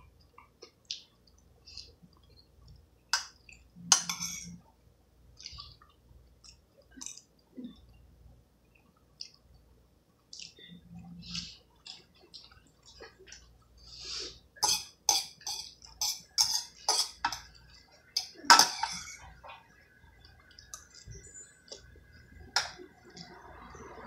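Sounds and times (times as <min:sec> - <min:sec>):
metal fork scraping a steel pot: 0:03.9 - 0:04.6, 0:14.6 - 0:17.4, 0:18.2 - 0:19.3.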